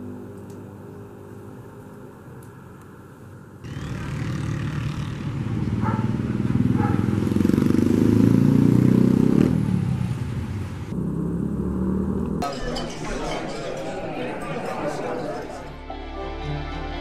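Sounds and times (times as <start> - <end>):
vehicle engine passing: 3.6 - 15.9.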